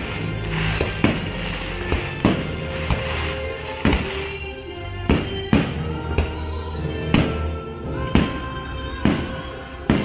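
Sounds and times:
firework shells bursting: 0:00.0 - 0:06.4
soundtrack music: 0:00.0 - 0:10.0.

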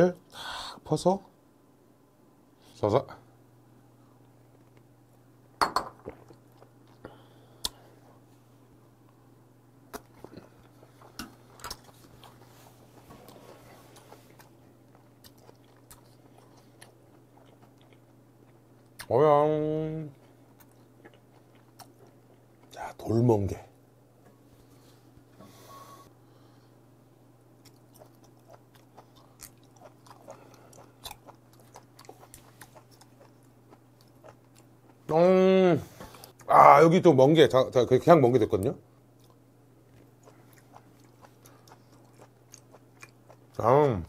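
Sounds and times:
low steady hum: 0:00.0 - 0:44.0
man chewing food: 0:06.0 - 0:08.3, 0:09.9 - 0:19.1, 0:20.1 - 0:22.8, 0:27.5 - 0:35.1, 0:39.0 - 0:43.6.

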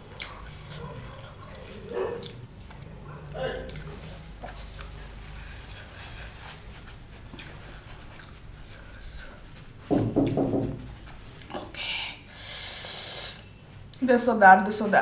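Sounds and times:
hissing breath through lips: 0:12.3 - 0:13.4.

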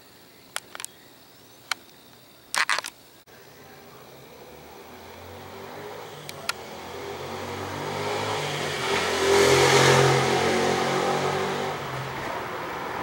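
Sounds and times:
sharp clicks: 0:00.5 - 0:01.0, 0:01.6 - 0:03.0, 0:06.2 - 0:06.6
motor vehicle passing: 0:04.1 - 0:13.0.

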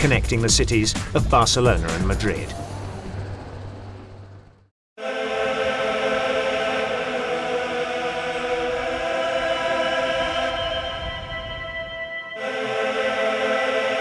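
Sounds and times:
choir holding a sustained chord: 0:05.0 - 0:14.0.

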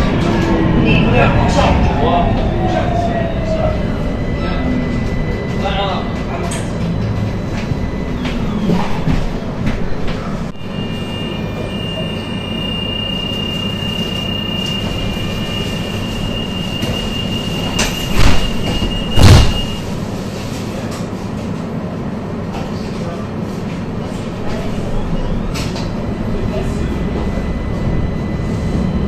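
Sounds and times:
tram running gear rumble: 0:00.0 - 0:10.5, 0:19.8 - 0:29.0
high-pitched traction drive whine: 0:00.8 - 0:09.4, 0:10.5 - 0:18.0, 0:25.1 - 0:29.0.

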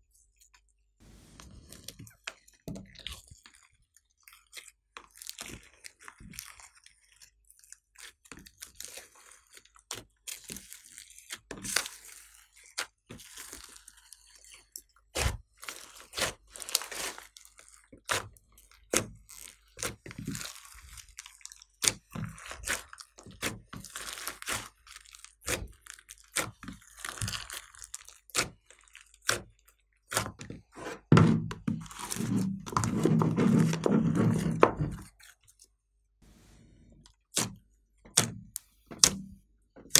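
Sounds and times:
slime squelching and popping: 0:14.8 - 0:30.6, 0:37.2 - 0:39.9.

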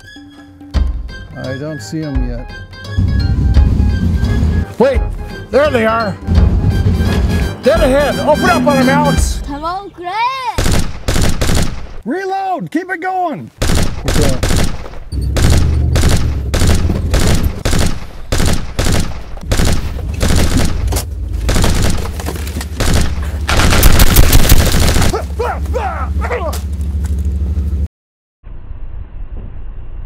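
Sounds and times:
low hum: 0:03.0 - 0:05.4, 0:15.0 - 0:30.0
automatic gunfire burst: 0:10.6 - 0:12.0, 0:13.6 - 0:14.8, 0:15.4 - 0:20.8, 0:21.5 - 0:22.1, 0:22.8 - 0:25.1
gunshots: 0:10.6 - 0:12.0, 0:13.6 - 0:22.2, 0:22.8 - 0:25.2.

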